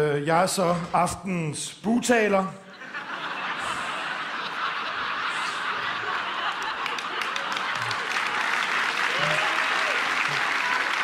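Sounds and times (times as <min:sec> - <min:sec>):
audience laughing: 0:02.6 - 0:11.0
audience applauding: 0:04.6 - 0:11.0.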